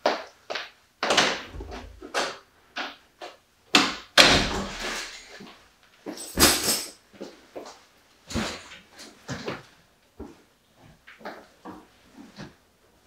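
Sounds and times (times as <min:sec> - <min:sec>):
door opening and shutting: 0:01.1 - 0:02.4
knocks and bumps: 0:01.1 - 0:02.4.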